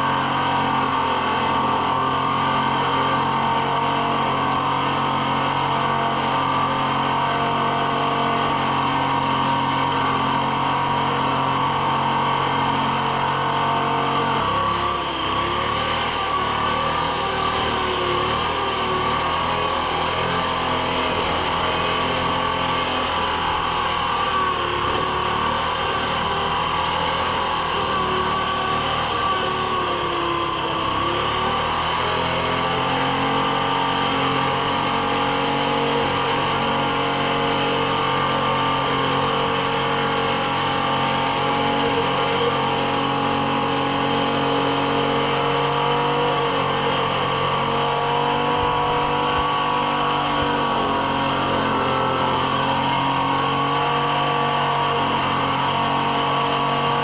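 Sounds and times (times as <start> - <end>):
skidder engine running: 0.0 - 57.0.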